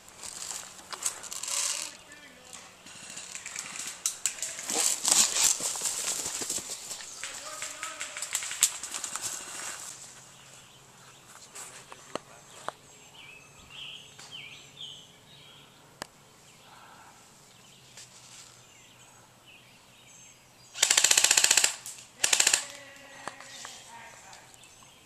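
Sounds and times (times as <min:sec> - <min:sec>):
airsoft rifle full-auto bursts: 0:20.8 - 0:22.9.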